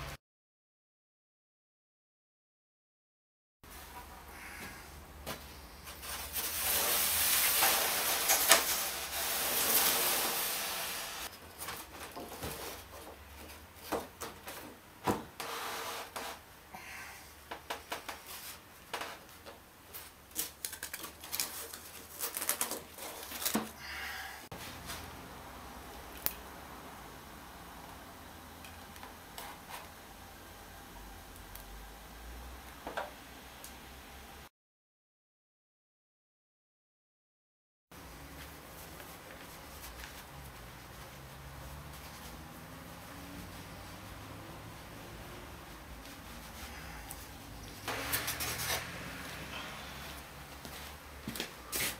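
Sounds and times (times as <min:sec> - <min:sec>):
rough rubbing noise: 0:06.0 - 0:11.3, 0:47.9 - 0:49.1.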